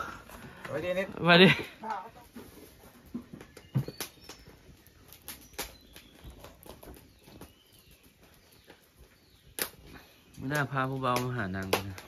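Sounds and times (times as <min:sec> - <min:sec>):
firewood crackling and popping: 0:00.0 - 0:12.0.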